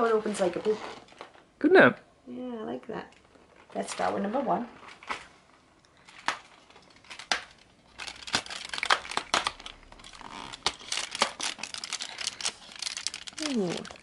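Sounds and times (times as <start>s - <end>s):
cardboard crackling and tearing: 7.0s - 14.0s.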